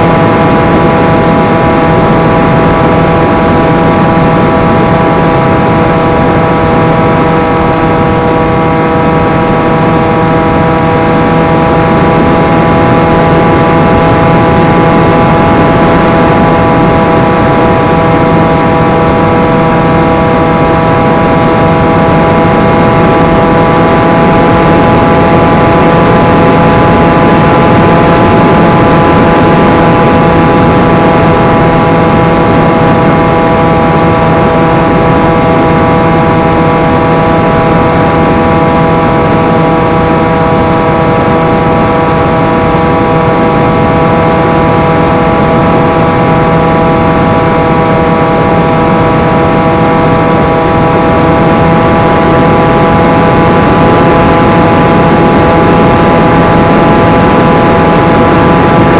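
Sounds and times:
electric motor whine: 0.0 - 58.9.

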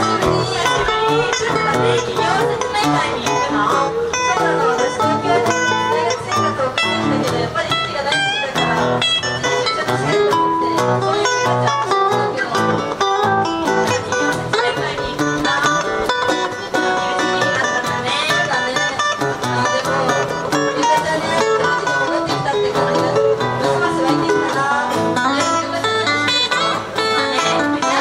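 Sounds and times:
solo guitar playing: 0.0 - 28.0.

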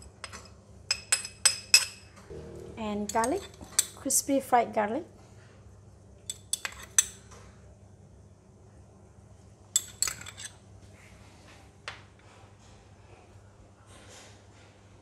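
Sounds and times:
metal spoon clinking on dishes: 0.0 - 2.1, 3.0 - 4.1, 6.3 - 7.2, 9.8 - 10.6.

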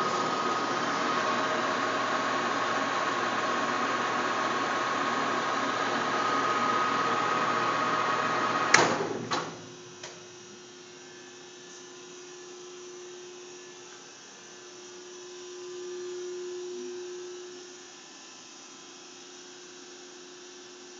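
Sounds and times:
lathe whirring with high tone: 0.0 - 9.2.

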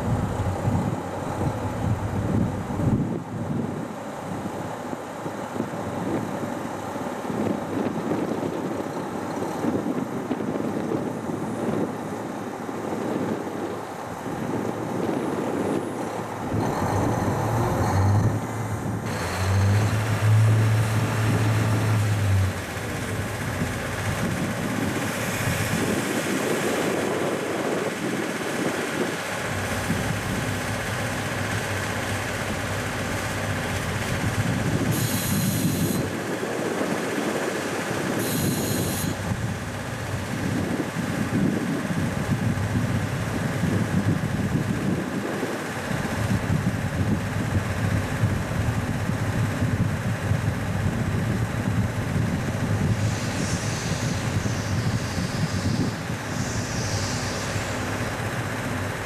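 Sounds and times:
steam locomotive running slowly: 0.0 - 59.0
brief high hiss: 34.9 - 36.1, 38.2 - 39.2, 52.9 - 58.7
low hum: 50.4 - 59.0.

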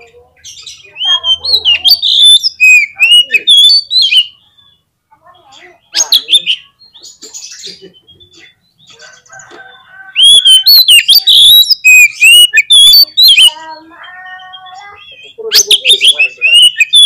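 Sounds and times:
bird singing whistled notes: 1.0 - 4.8, 9.7 - 17.0.

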